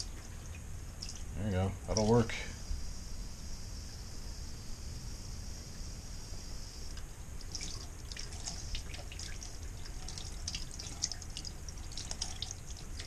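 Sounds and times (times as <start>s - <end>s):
water running into a steel sink: 7.5s - 13.0s.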